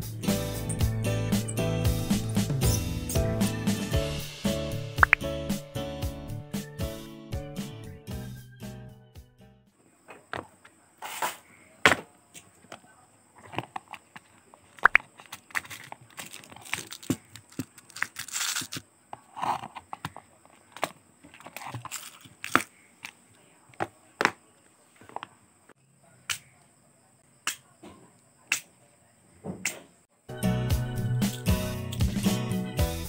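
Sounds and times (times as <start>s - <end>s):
rustling scrape: 11.0s - 11.5s, 13.4s - 20.2s.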